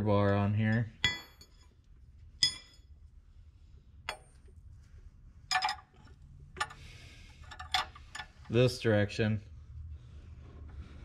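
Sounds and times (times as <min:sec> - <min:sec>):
metal tools clinking: 0:02.4 - 0:02.9, 0:05.5 - 0:06.8, 0:07.4 - 0:08.6.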